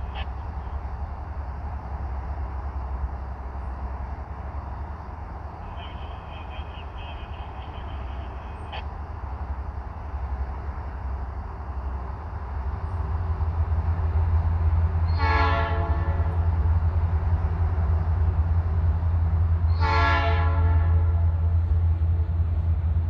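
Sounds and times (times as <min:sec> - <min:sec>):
locomotive engines rumbling: 0:00.0 - 0:23.0
locomotive air horn blasts: 0:15.1 - 0:16.3, 0:19.8 - 0:21.2.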